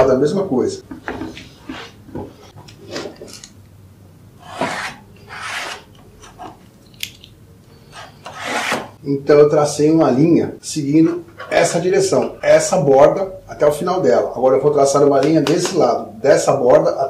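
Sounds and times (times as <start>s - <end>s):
pencil scratching on wood: 4.4s - 6.5s, 7.9s - 9.0s.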